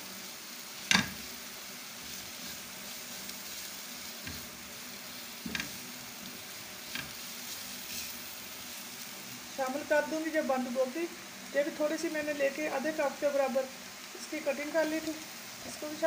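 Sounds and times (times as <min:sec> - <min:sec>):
vegetables sizzling in oil: 0:00.0 - 0:16.0
spatula knocking on pan: 0:00.9 - 0:01.2.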